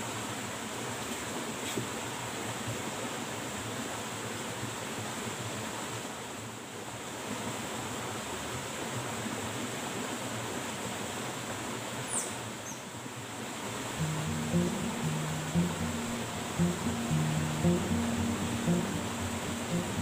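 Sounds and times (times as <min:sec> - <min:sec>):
river water rushing: 0:13.4 - 0:20.0
background music: 0:14.0 - 0:20.0.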